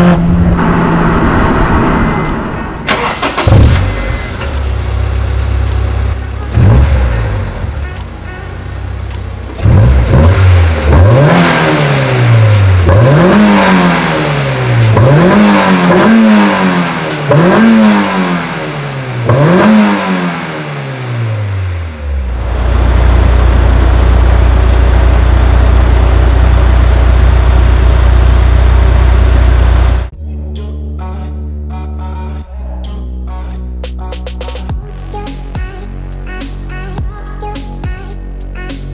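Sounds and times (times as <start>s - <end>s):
car engine revving: 0.0s - 30.1s
car engine idling: 2.3s - 19.4s, 20.5s - 30.1s.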